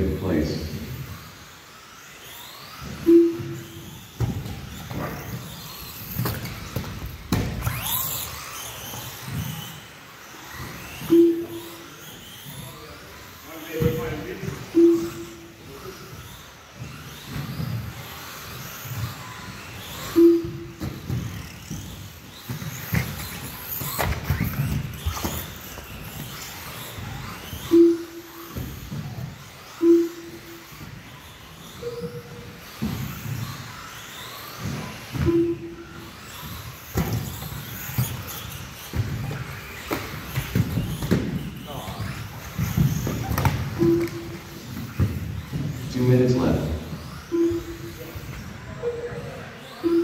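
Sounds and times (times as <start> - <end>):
rc car motors whining: 0.0 - 50.0
short beep: 3.0 - 3.8, 11.0 - 11.9, 14.7 - 15.5, 20.0 - 20.8, 27.6 - 28.4, 29.8 - 30.6, 31.8 - 32.3, 35.2 - 35.9, 43.8 - 44.4, 47.3 - 48.2.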